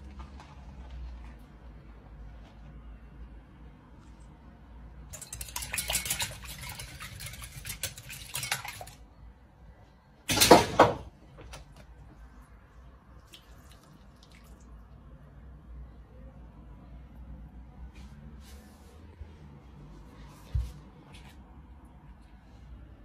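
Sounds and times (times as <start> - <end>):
crackly plastic rustle: 0.0 - 2.8
kitchen handling sounds: 10.3 - 11.9.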